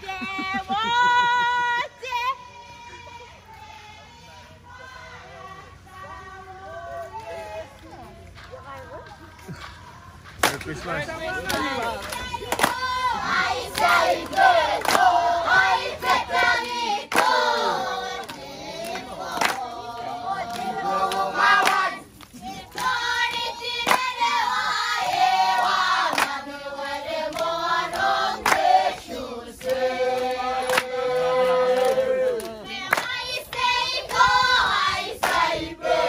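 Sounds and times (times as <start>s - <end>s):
sharp claps: 8.3s - 12.9s, 13.7s - 15.1s, 17.1s - 17.4s, 18.2s - 19.7s, 20.4s - 24.2s, 26.1s - 26.4s, 27.3s - 28.7s, 29.6s - 34.2s, 35.2s - 35.4s.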